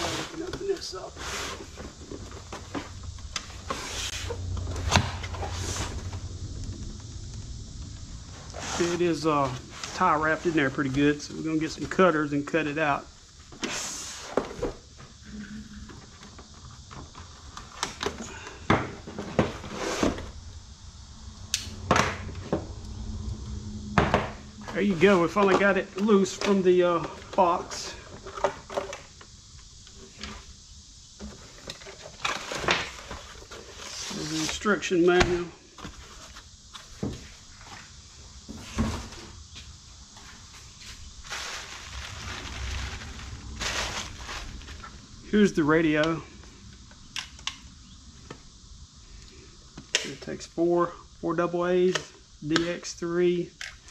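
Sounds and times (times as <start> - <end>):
cardboard box and packaging handled: 40.8 - 45.0
bubble-wrap bag crinkling: 41.2 - 45.0.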